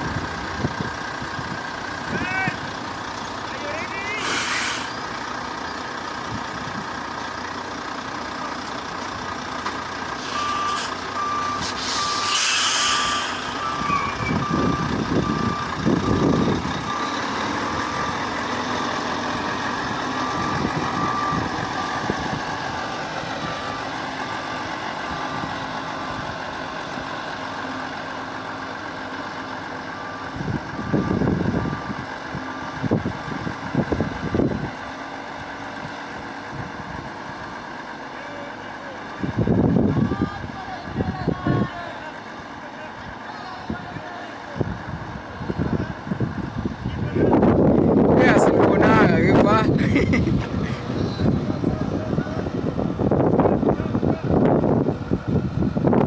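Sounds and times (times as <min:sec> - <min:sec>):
diesel truck engine running: 0:00.0 - 0:56.0
air brake hiss: 0:04.2 - 0:05.0, 0:10.2 - 0:11.0, 0:11.6 - 0:13.6
reversing alarm beeping: 0:10.2 - 0:18.2, 0:19.8 - 0:22.7, 0:29.9 - 0:32.0.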